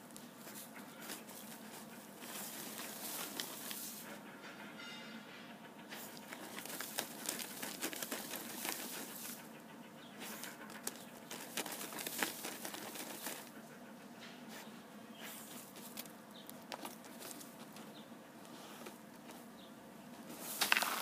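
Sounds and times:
dog scratching in dry earth: 0:00.3 - 0:04.2, 0:05.9 - 0:09.6, 0:10.2 - 0:13.7, 0:14.5 - 0:17.9, 0:20.3 - 0:21.0.

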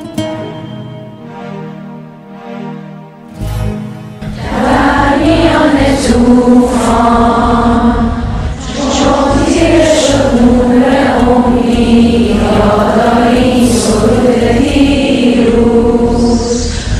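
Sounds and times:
low steady accompaniment: 0:00.0 - 0:16.9
chant-like singing: 0:04.3 - 0:16.9.

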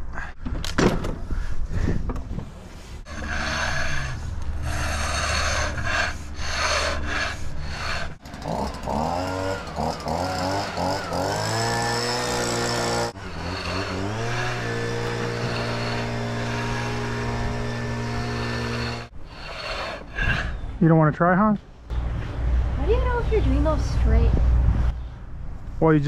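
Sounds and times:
pitched hum: 0:03.1 - 0:20.6
concrete groover scraping concrete: 0:06.5 - 0:20.1.

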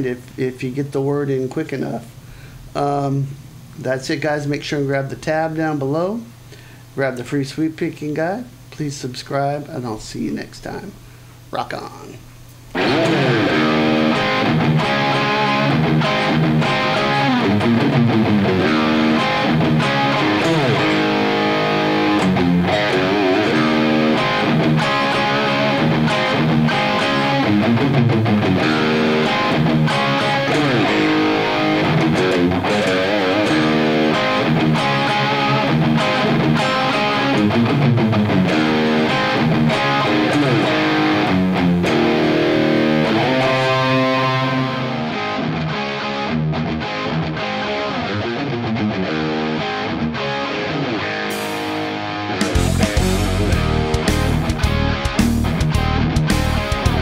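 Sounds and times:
distorted electric guitar metal riff: 0:12.7 - 0:57.0.

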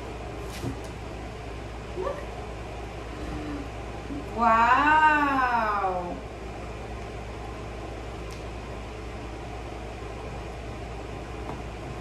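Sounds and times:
room hum and hiss: 0:00.0 - 0:12.0.

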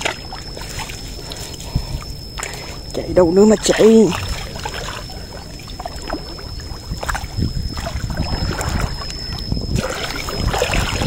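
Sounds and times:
person wading through water: 0:00.0 - 0:11.0.

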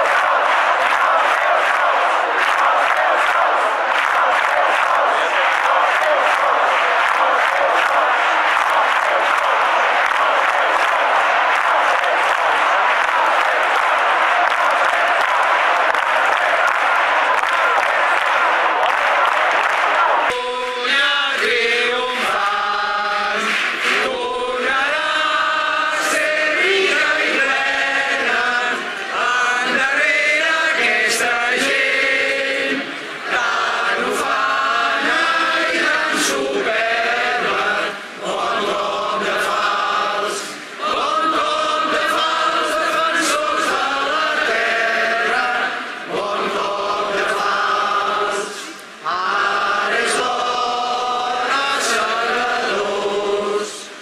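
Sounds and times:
crowd singing in unison: 0:00.0 - 0:54.0.

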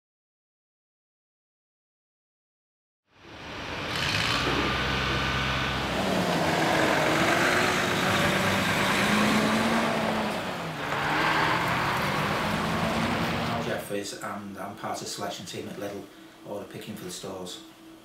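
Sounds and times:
lorry diesel engine running: 0:03.3 - 0:13.8.

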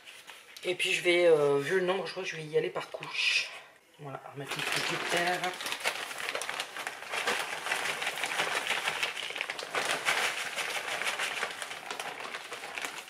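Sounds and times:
soil rustling into a pot: 0:04.5 - 0:13.0.

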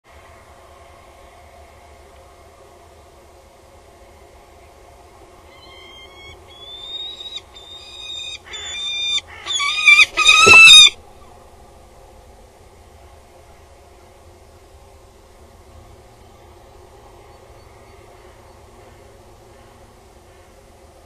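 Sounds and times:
falcon calling: 0:05.5 - 0:11.0
bird landing thump: 0:10.2 - 0:10.9.

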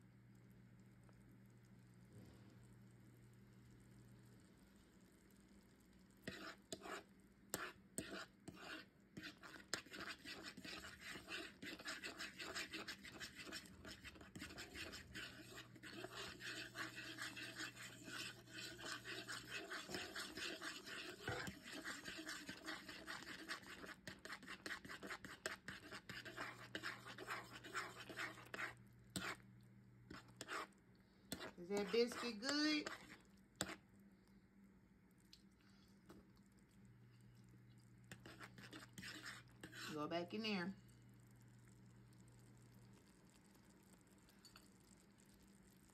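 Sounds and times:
steady low hum: 0:00.0 - 0:23.9
utensil stirring gravy in a pot: 0:05.2 - 0:34.0, 0:35.3 - 0:45.9.

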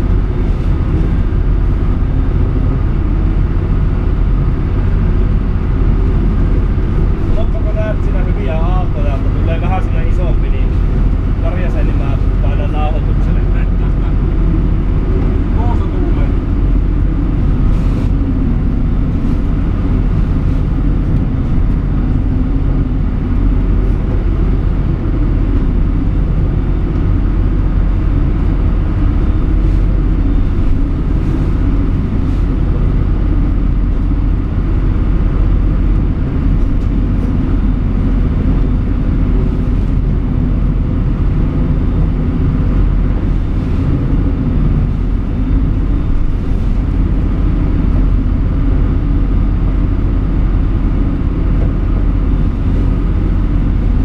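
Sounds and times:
motorboat engine running: 0:00.0 - 0:54.0
waves rushing against hull: 0:00.0 - 0:54.0.

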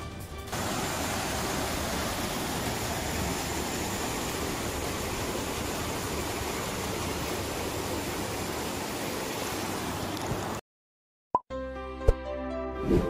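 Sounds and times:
flood water rushing: 0:00.5 - 0:10.6.

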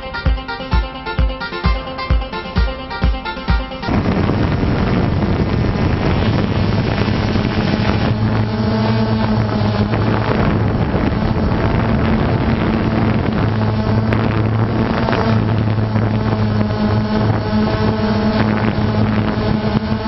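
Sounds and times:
drone propellers humming: 0:00.0 - 0:20.0
wind noise on microphone: 0:03.0 - 0:20.0.

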